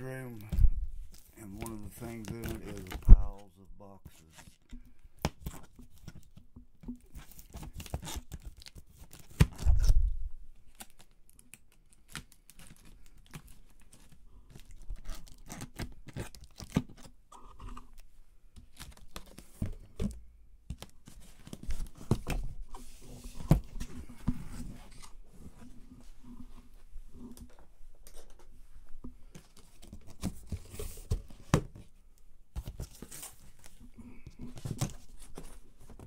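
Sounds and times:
cardboard tearing: 7.2 - 10.0, 10.7 - 17.1.

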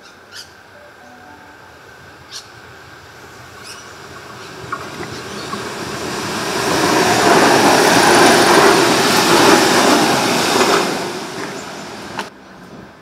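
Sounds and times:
train wheels rushing on rails: 2.2 - 13.0.

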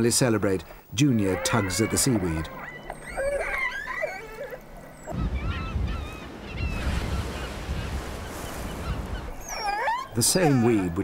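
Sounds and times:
wind and waves: 2.4 - 11.0.

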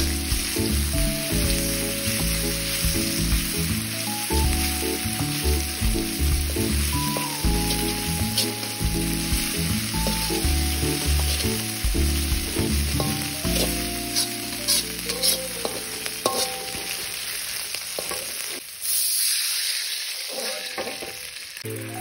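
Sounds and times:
background music with beat: 0.0 - 16.4
paste sizzling in hot oil: 0.0 - 22.0
metal spatula scraping wok: 6.5 - 11.8, 12.4 - 21.3.

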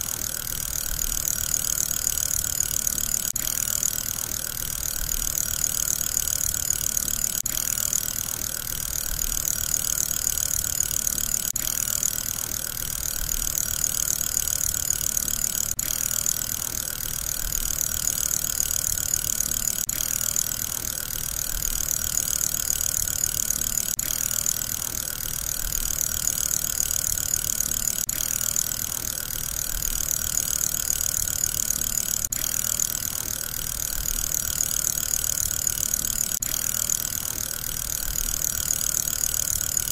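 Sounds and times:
fidget spinner whirring: 0.0 - 39.9.

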